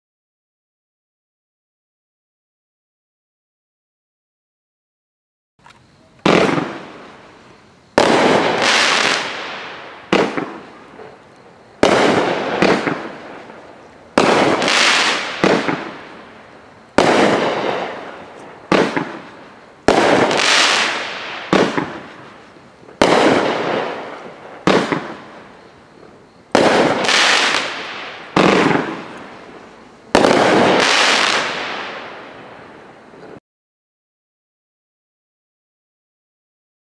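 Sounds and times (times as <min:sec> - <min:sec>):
firework shots firing: 0:06.2 - 0:07.3, 0:08.0 - 0:25.6, 0:26.5 - 0:33.4.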